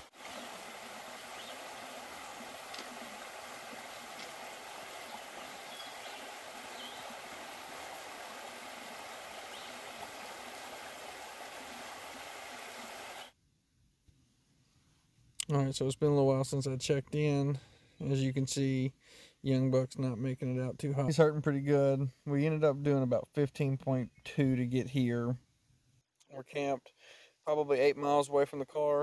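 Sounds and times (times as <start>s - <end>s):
creek flowing over stones: 0.0s - 13.3s.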